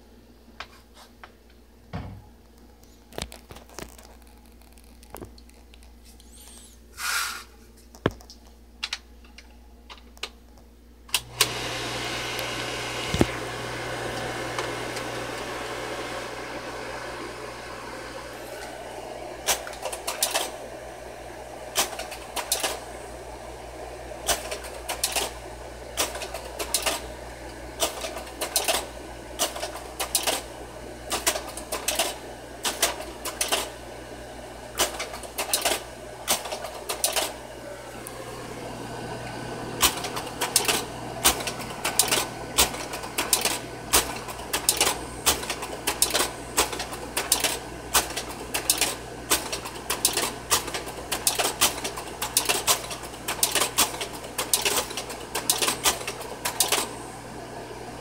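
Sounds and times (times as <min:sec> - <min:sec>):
projector humming: 0:00.0 - 0:58.0
slide projector mechanism clacking: 0:19.5 - 0:20.6, 0:21.7 - 0:22.8, 0:26.0 - 0:27.1, 0:34.8 - 0:37.4, 0:39.8 - 0:56.9.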